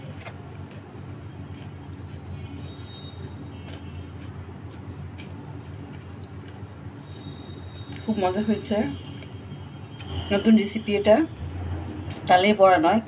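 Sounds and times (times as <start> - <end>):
soft rustles and clicks of tearing food: 0.0 - 7.0
steady low hum: 0.0 - 13.0.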